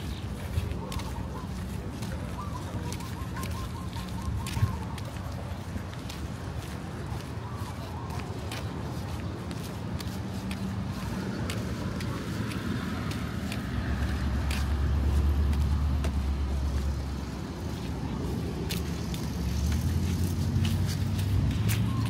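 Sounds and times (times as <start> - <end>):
vehicle engine humming: 0.0 - 22.0.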